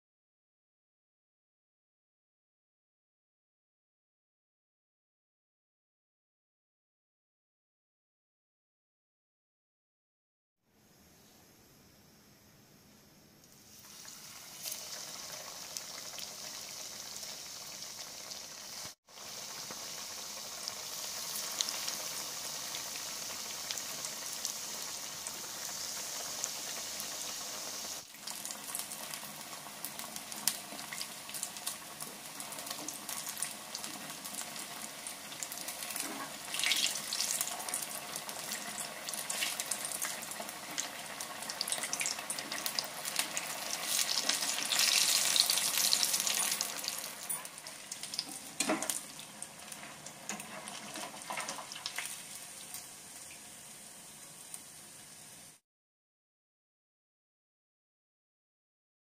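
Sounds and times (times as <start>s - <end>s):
patties sizzling in oil: 13.5s - 55.6s.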